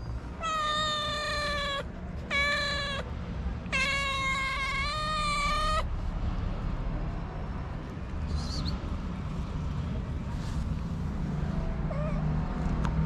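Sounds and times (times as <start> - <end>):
cat meowing: 0.4 - 5.9, 11.9 - 12.3.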